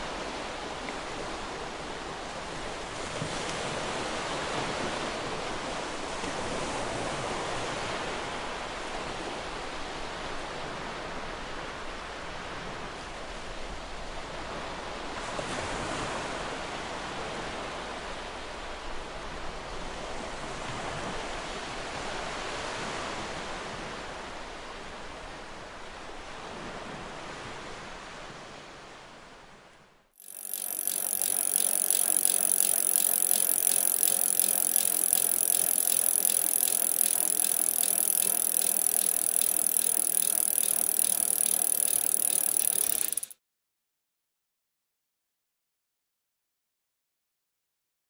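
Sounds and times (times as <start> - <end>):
mechanical whirring with rattling tick: 30.2 - 43.4.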